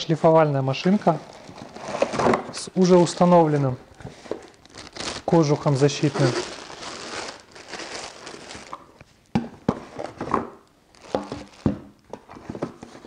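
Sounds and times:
plastic bag crinkling: 0.8s - 9.0s, 10.9s - 11.8s.

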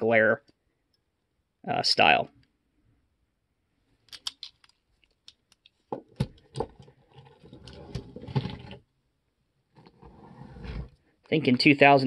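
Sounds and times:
metal model clicks and rattles: 4.1s - 5.8s
models scraping on table: 9.7s - 11.0s.

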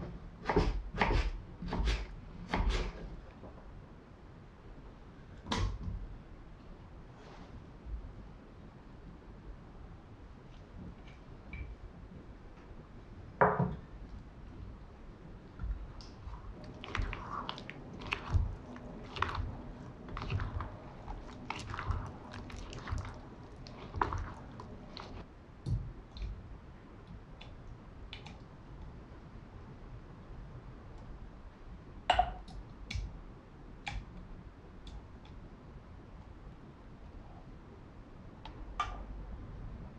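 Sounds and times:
spatula stirring wet food: 15.5s - 25.3s.

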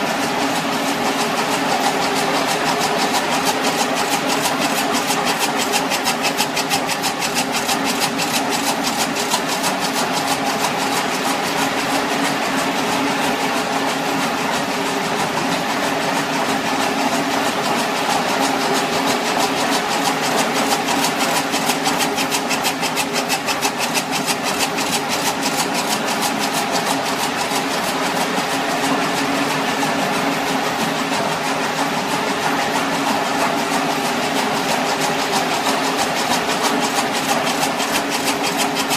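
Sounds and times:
steady mechanical hum: 0.0s - 38.9s
fast fine ticking: 0.2s - 12.0s, 16.8s - 28.8s, 33.6s - 38.9s.

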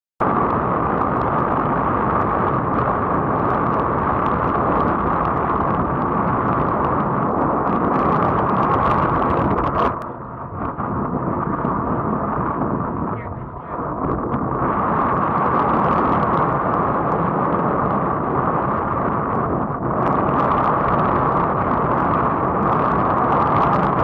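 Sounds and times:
motorboat engine: 0.2s - 24.0s
rushing wind: 0.2s - 24.0s.

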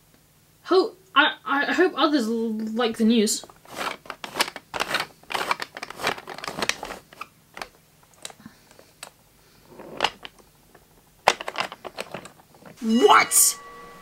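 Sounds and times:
wooden toy train clicks and knocks: 3.4s - 9.2s, 10.0s - 12.8s.

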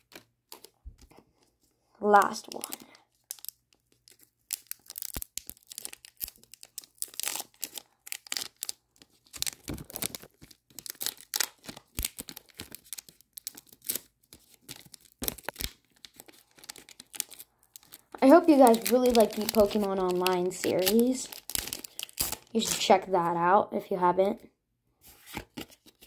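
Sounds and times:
foil wrapper tearing and crinkling: 0.0s - 0.8s, 2.2s - 22.9s.

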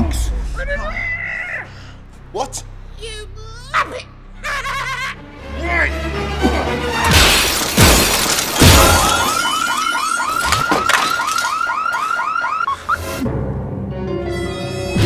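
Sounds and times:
car alarm whooping: 8.7s - 13.2s.

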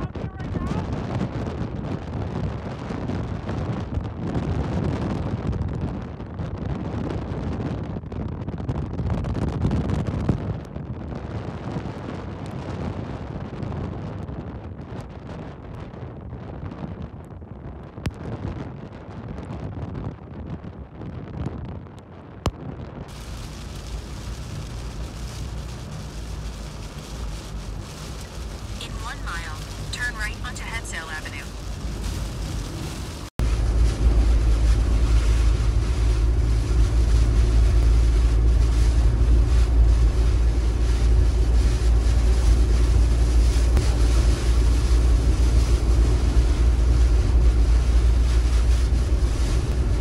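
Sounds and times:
heavy wind buffeting microphone: 0.0s - 50.0s
wind-driven rain: 0.0s - 50.0s.

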